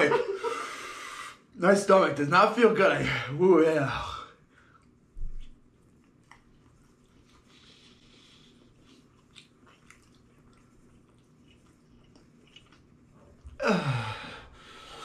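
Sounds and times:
person chewing: 0:04.6 - 0:13.6.

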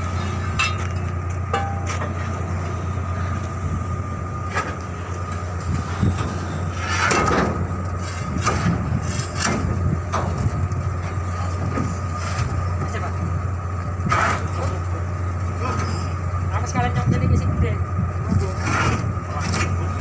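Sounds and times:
machinery hum with high whine: 0:00.0 - 0:20.0
metal knocks and clanks: 0:00.6 - 0:02.3.

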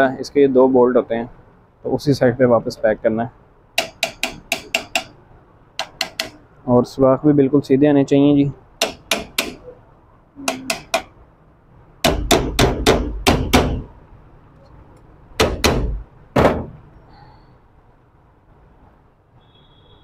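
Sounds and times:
hammer tapping metal: 0:03.8 - 0:05.2, 0:05.8 - 0:06.4, 0:08.8 - 0:09.7, 0:10.4 - 0:11.2, 0:12.0 - 0:13.9, 0:15.4 - 0:16.7.

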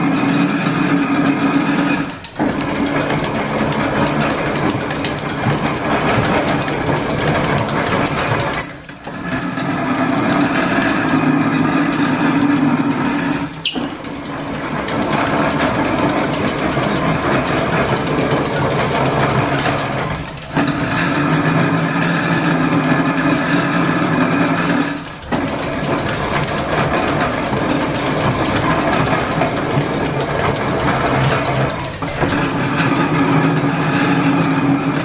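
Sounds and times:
metal planer mechanical drone: 0:00.0 - 0:35.0
short high squeak: 0:08.6 - 0:09.8, 0:13.6 - 0:13.9, 0:20.0 - 0:21.2, 0:31.8 - 0:32.8.

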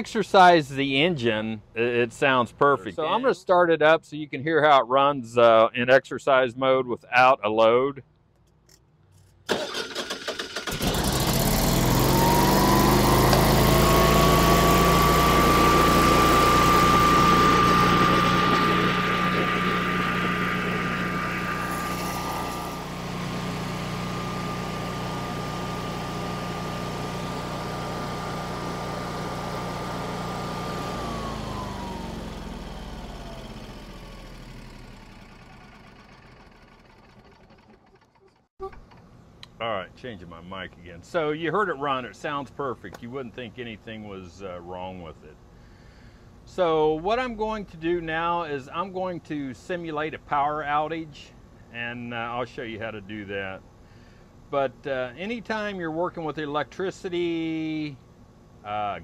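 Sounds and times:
generator engine cranking and running: 0:09.4 - 0:39.2.

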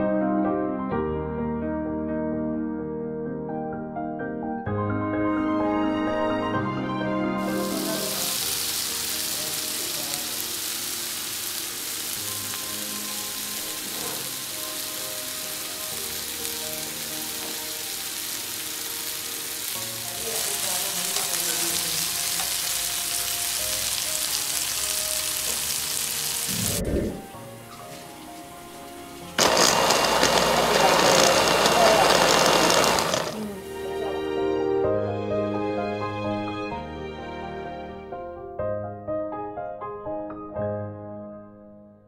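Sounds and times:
chicken and onion sizzling in oil: 0:07.4 - 0:26.8, 0:27.7 - 0:34.0.

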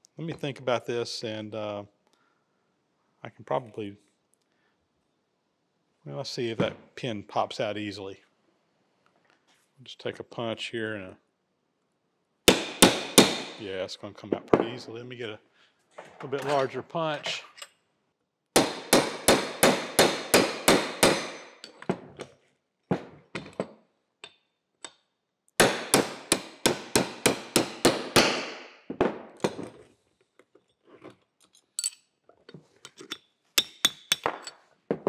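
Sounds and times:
hammer tapping metal punch: 0:18.6 - 0:21.9
metal clinks of handling: 0:21.6 - 0:21.9, 0:31.4 - 0:32.1.

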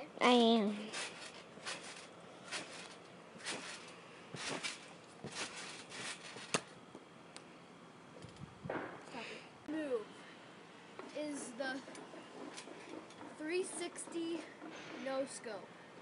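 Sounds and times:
trampoline bouncing thumps: 0:00.3 - 0:07.0, 0:08.2 - 0:09.1, 0:11.0 - 0:15.6.

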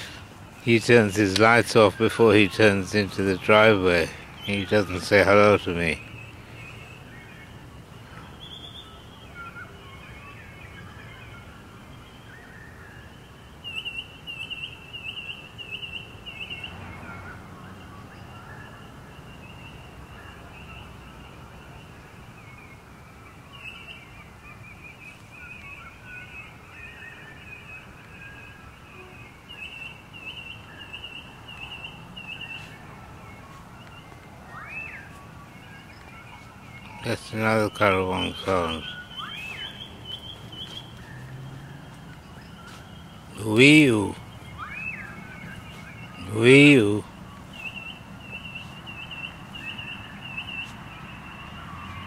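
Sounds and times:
birds calling and whistling: 0:00.0 - 0:52.0
quick repeated bird chirps: 0:27.4 - 0:52.0.

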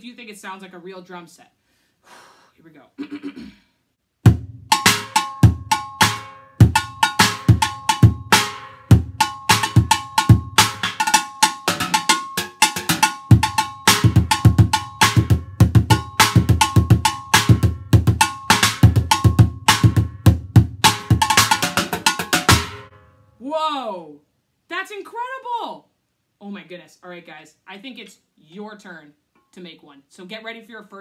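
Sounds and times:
bucket bass drum thuds: 0:04.3 - 0:22.9.

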